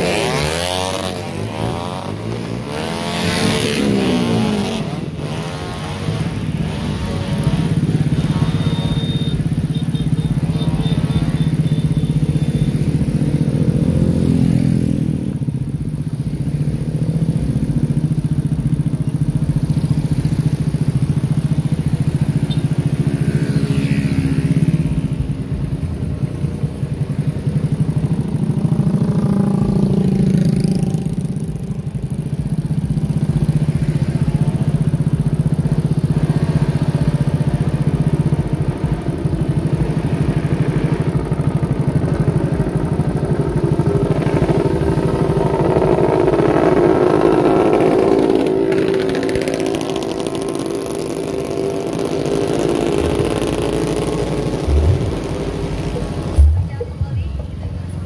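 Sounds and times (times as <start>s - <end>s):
motorcycle passing close by: 0.0s - 9.2s, 12.9s - 15.5s, 22.0s - 25.7s, 28.0s - 31.5s, 43.7s - 56.8s
motorcycle engines running: 0.0s - 58.0s.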